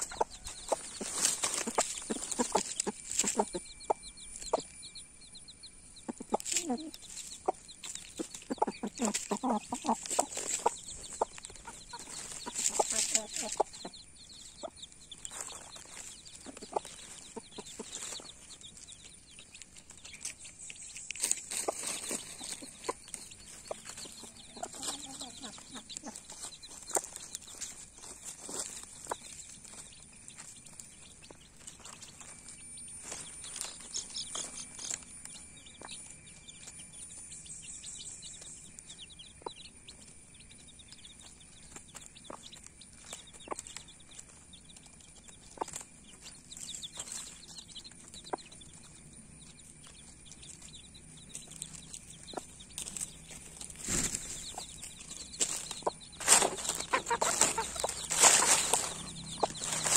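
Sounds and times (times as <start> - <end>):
hen pecking at food: 0.0 - 4.6, 6.1 - 35.0, 41.2 - 59.9
hen clucking: 0.0 - 4.8, 5.8 - 35.0, 40.6 - 59.9
chicks peeping: 0.0 - 59.9
scuffling on leaves: 0.1 - 3.6, 6.4 - 13.8, 15.2 - 35.0, 51.3 - 59.9.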